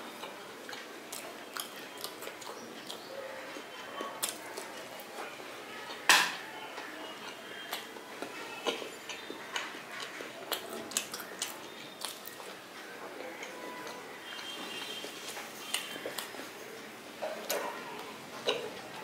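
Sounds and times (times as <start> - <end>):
chewing mouth clicks and smacks: 0.1 - 5.3, 7.2 - 12.6, 17.2 - 18.8.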